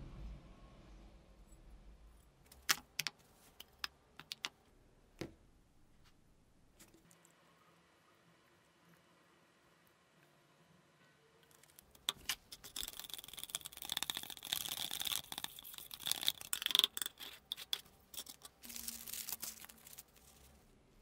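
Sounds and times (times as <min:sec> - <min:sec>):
stick scraping plastic cup: 0:11.6 - 0:20.4
paper rustling: 0:18.2 - 0:20.8.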